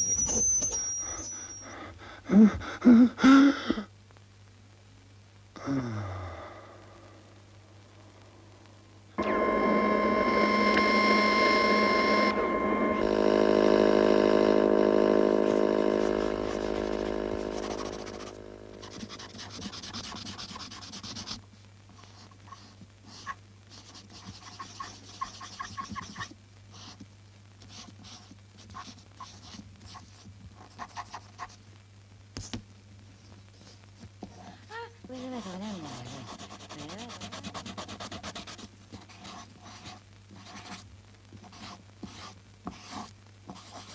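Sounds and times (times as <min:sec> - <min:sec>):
loud electronic tone: 0:00.0 - 0:01.7, 0:09.2 - 0:19.1
dry scratching and rubbing: 0:15.4 - 0:27.0, 0:35.1 - 0:43.9.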